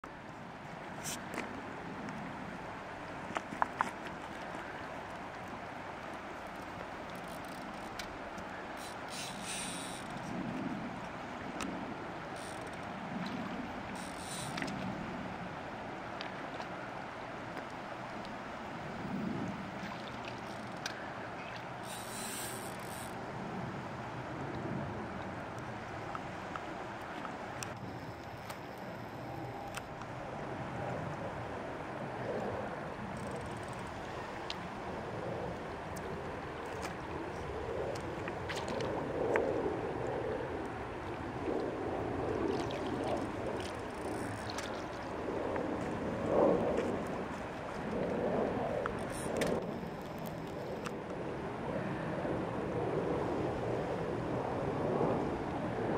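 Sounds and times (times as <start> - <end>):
river water flowing and lapping: 0.0 - 55.9
faint ticks: 3.3 - 10.4, 12.3 - 14.9, 20.3 - 21.0, 21.8 - 23.2, 33.1 - 34.6.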